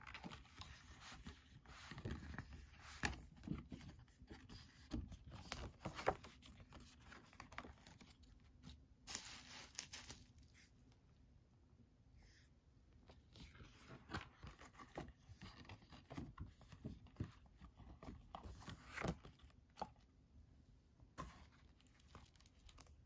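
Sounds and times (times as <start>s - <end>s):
binder pages rustling: 0.0s - 10.9s, 13.0s - 20.1s.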